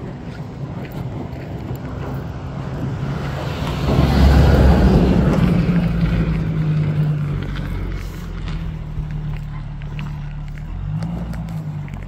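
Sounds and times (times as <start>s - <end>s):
pickup truck engine running: 0.0s - 12.0s.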